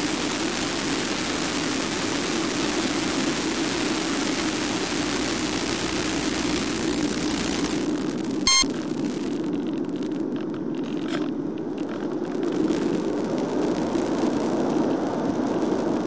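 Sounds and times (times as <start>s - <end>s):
loud electronic beep: 8.5s - 8.7s.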